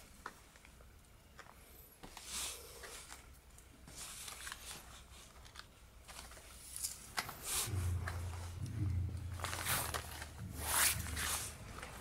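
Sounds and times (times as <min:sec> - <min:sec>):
steady low hum: 0:05.8 - 0:12.0.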